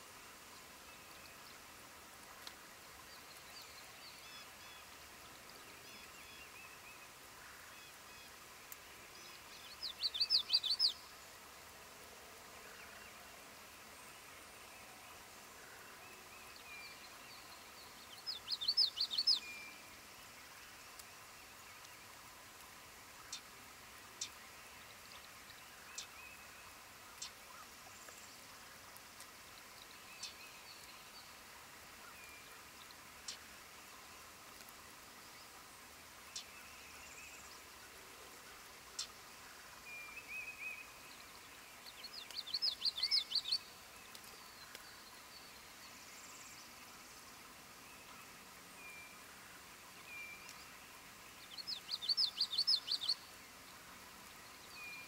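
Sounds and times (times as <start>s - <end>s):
faint bird chirps: 5.6s - 11.2s, 14.0s - 22.2s, 38.9s - 47.2s, 49.9s - 53.7s
bird song of sharp sweeping notes: 9.1s - 11.1s, 16.0s - 20.0s, 39.9s - 46.8s, 50.0s - 55.0s
faint other bird calls: 12.5s - 55.0s.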